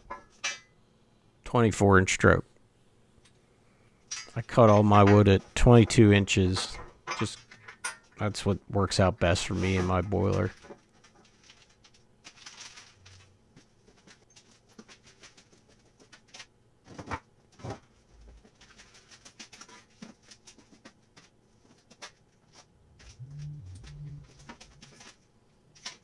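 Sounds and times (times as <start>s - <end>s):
low thuds: 22.8s - 25.1s.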